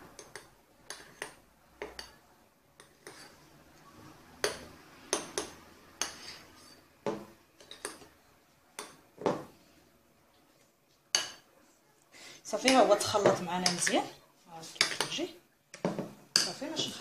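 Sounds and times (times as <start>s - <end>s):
metal spoon scraping a glass bowl: 2.8s - 3.5s, 4.4s - 6.9s.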